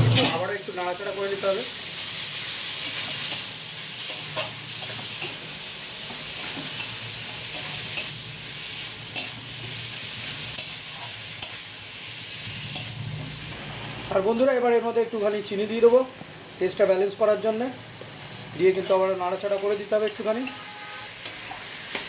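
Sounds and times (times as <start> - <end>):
frying sizzle: 0.0 - 22.0
metal spatula scraping a pan: 2.4 - 11.7, 18.6 - 22.0.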